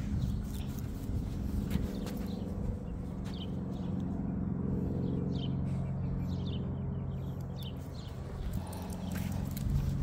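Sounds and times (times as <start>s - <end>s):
vehicle engine humming: 0.0s - 10.0s.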